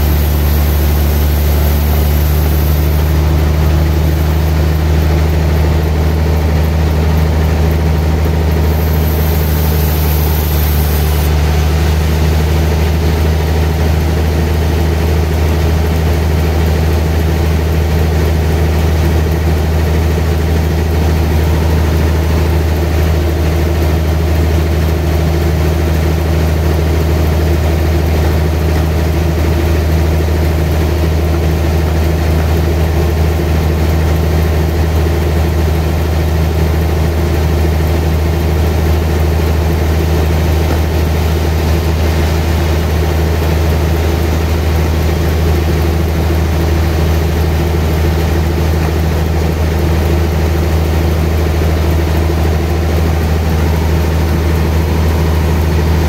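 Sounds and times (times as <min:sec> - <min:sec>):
band saw cutting through log: 0:00.0 - 0:15.8, 0:18.8 - 0:25.4.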